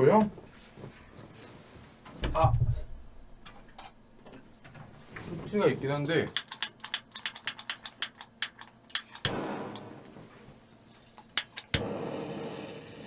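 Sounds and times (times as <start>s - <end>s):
torch clicks: 6.3s - 9.9s, 11.1s - 12.5s
gas hissing: 11.3s - 13.0s
torch flame hissing: 11.5s - 13.0s.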